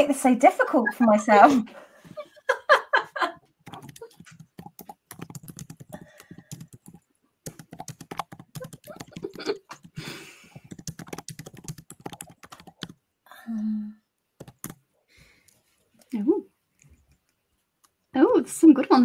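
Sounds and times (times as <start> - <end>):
typing on computer keyboard: 3.6 - 13.0, 14.4 - 14.8.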